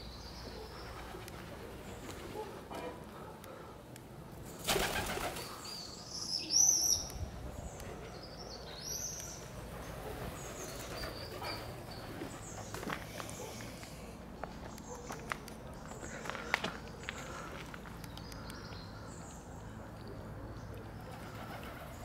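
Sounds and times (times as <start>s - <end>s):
pigeon wing beats: 4.6s - 5.5s.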